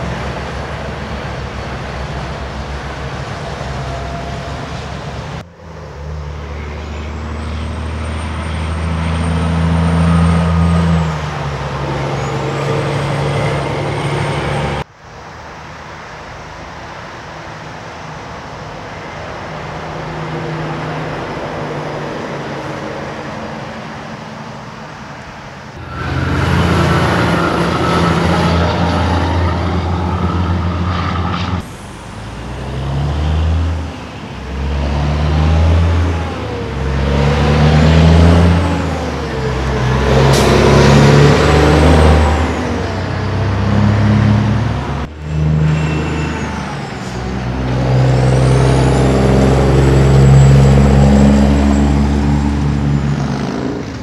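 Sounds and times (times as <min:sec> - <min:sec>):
diesel truck engines shifting gears: 0:00.0 - 0:14.9, 0:25.8 - 0:54.0.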